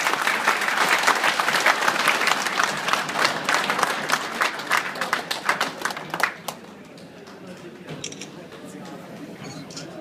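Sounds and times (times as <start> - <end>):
group of people applauding: 0.0 - 7.8.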